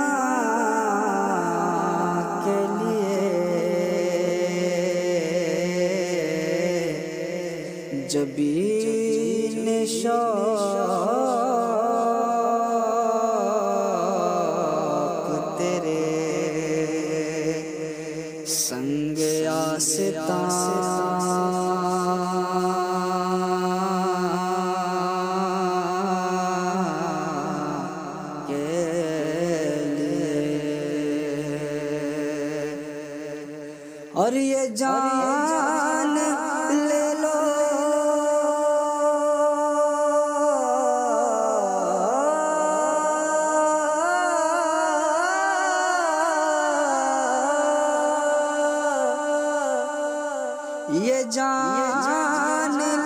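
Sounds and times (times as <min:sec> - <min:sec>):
man singing long notes: 0:00.0 - 0:53.0.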